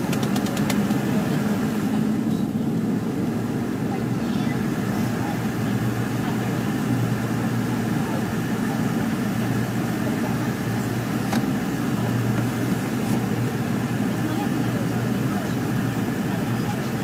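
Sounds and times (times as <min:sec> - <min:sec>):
airliner cabin engine drone: 0:00.0 - 0:17.0.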